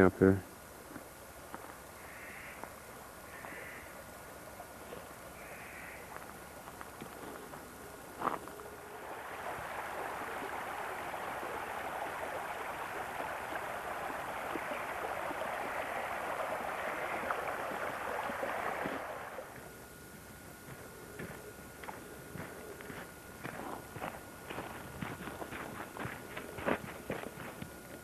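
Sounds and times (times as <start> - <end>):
creek water babbling: 1.3 - 19.6.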